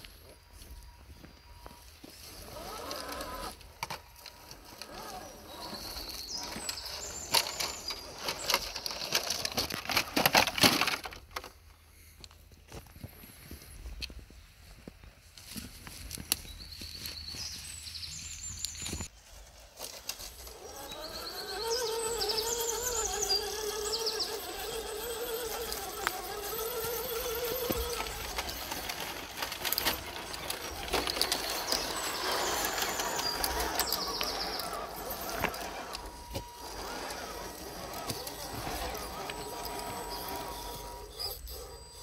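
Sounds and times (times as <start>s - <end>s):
small electric motor whining: 1.7s - 9.6s, 20.0s - 42.0s.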